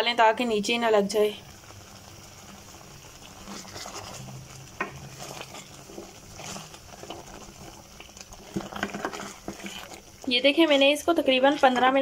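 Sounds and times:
syrup bubbling and sizzling: 0:00.0 - 0:12.0
spatula scraping a pan: 0:03.3 - 0:12.0.

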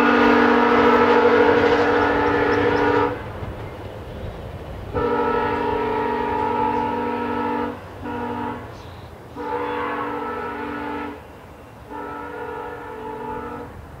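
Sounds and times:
locomotive air horn blasts: 0:00.0 - 0:03.4, 0:04.9 - 0:13.9.

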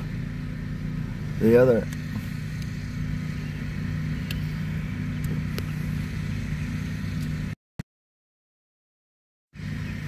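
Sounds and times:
vehicle engine idling: 0:00.0 - 0:07.6, 0:09.6 - 0:10.0.

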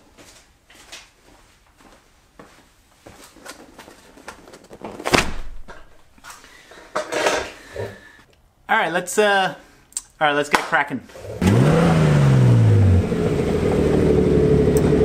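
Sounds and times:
knocks and cardboard rustles: 0:03.6 - 0:06.2
heavy thud of boxes set down: 0:04.8 - 0:06.0.

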